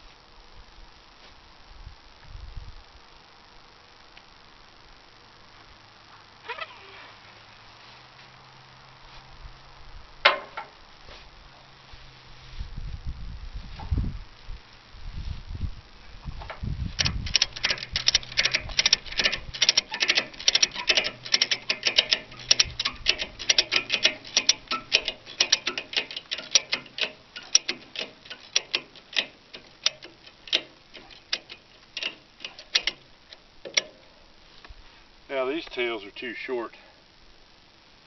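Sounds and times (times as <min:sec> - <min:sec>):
ratchet strap clicking: 0:17.0 - 0:34.0.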